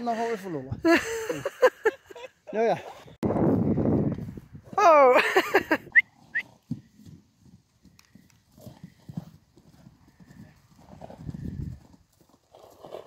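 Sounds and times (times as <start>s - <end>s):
horse hoofbeats on grass: 6.1s - 13.0s.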